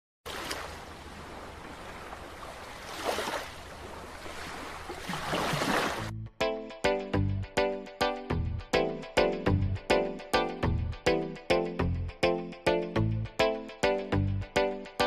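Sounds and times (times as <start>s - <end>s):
music: 6.1s - 15.0s.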